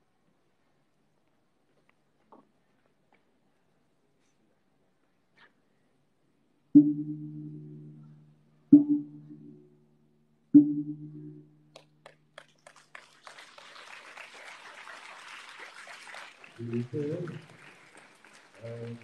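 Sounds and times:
people clapping: 11.7s - 19.0s.

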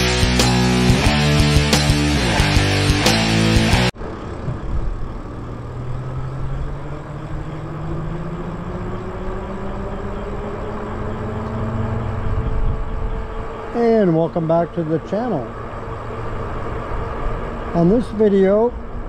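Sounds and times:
road and wind noise: 0.0s - 19.0s
electric motor whining: 5.8s - 18.0s.

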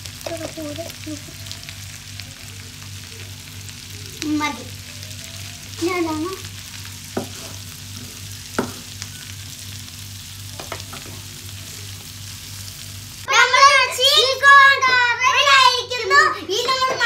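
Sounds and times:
corn frying in butter: 0.0s - 17.0s
child's voice: 0.2s - 1.6s, 4.2s - 6.5s, 13.3s - 17.0s
spatula knocking against pan: 8.6s - 8.9s.

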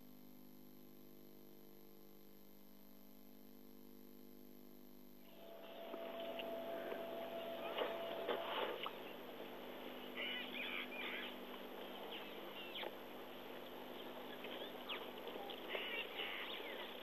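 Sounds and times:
birds chirping: 5.3s - 17.0s
downward-sweeping bird notes: 5.3s - 17.0s.

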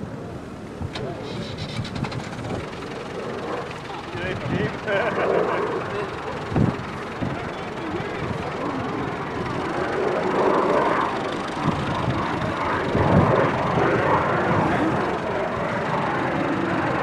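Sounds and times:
tractor diesel engine running: 0.9s - 17.0s.

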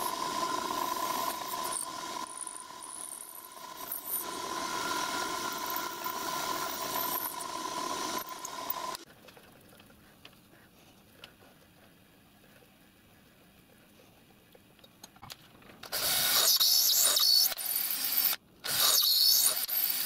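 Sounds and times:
end mill cutting metal: 0.0s - 9.0s
milling machine motor whine: 0.0s - 9.0s.

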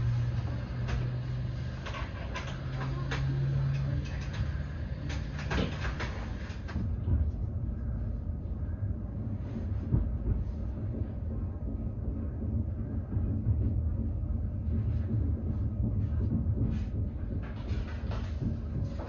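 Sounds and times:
train carriage low hum: 0.0s - 19.0s
sharp clicks and knocks: 0.3s - 7.4s.

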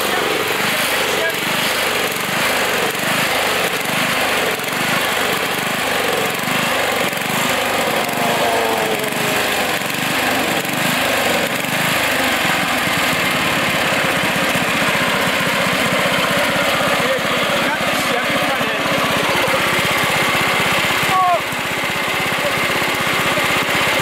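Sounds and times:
riding lawn mower engine: 0.0s - 24.0s.

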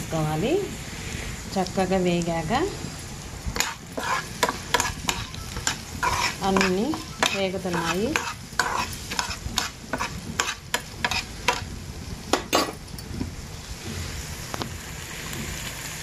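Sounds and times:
vegetables sizzling in oil: 0.0s - 16.0s
metal spoon scraping a pan: 3.6s - 11.7s.

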